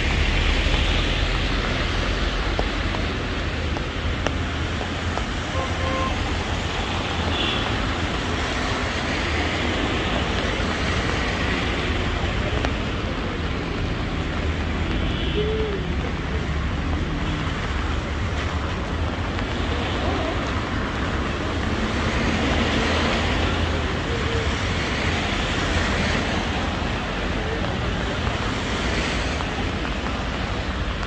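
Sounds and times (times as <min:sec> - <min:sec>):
rain traffic hiss: 0:00.0 - 0:31.0.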